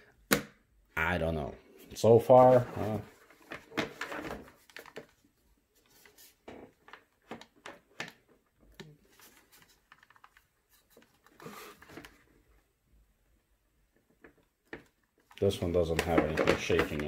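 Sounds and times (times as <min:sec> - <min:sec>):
hands handling plastic unit: 0:14.0 - 0:17.0
plastic case rustling: 0:14.1 - 0:17.0.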